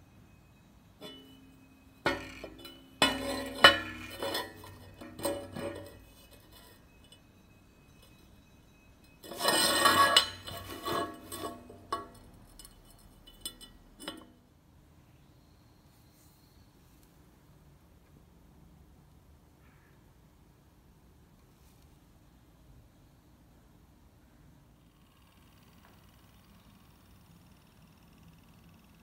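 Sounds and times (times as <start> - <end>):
metal clatter: 1.0 - 7.3, 9.0 - 14.4
steel tubes clinking on bench: 1.0 - 7.3, 9.0 - 14.4.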